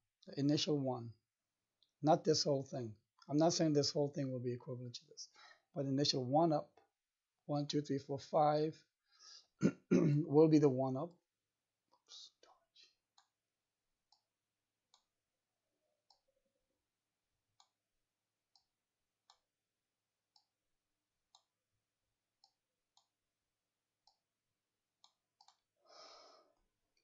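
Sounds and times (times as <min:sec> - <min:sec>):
computer mouse clicks: 0:25.0 - 0:25.7.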